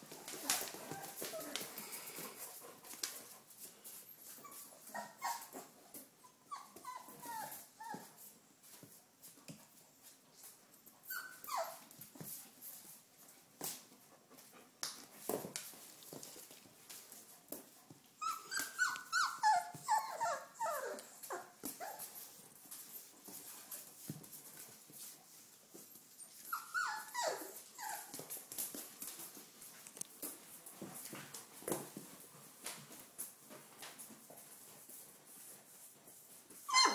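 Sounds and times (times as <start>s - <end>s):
puppies whimpering: 18.2s - 22.1s, 26.3s - 28.1s, 36.7s - 36.9s.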